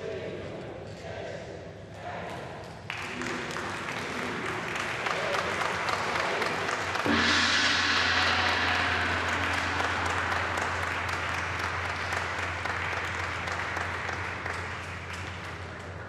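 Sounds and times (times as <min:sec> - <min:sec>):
small group applause: 0:02.9 - 0:16.0
large gong ringing: 0:07.0 - 0:14.4.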